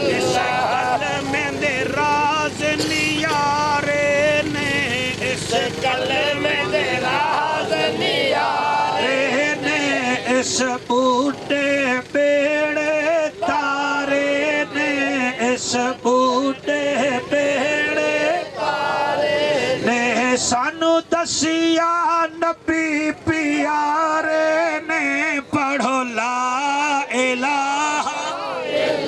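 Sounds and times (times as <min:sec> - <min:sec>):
man chanting: 0:08.6 - 0:18.4, 0:19.7 - 0:28.3.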